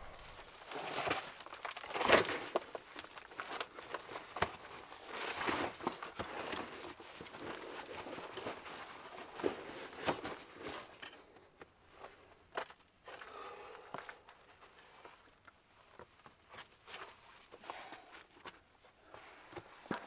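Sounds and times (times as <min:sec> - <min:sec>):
backpack gear rustling: 0:00.0 - 0:01.2.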